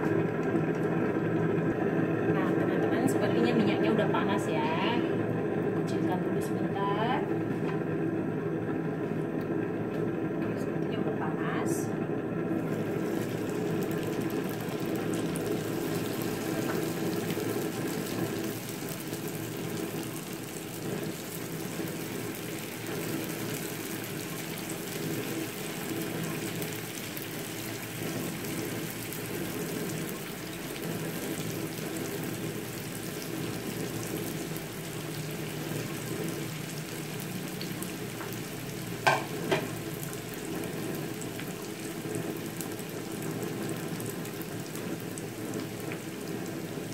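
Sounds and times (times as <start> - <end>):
food sizzling in hot oil: 12.5 - 46.9.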